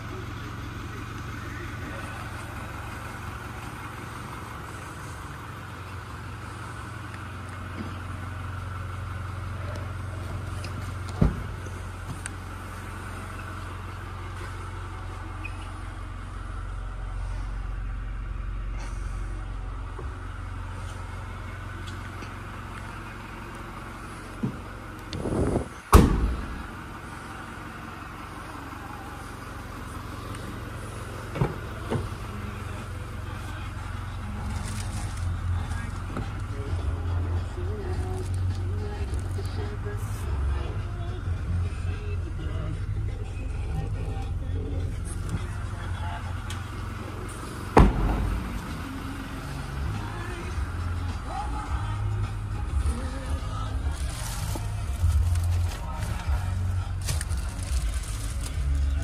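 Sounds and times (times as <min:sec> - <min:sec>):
tailgate slamming shut: 0:25.9 - 0:26.7, 0:47.7 - 0:48.6.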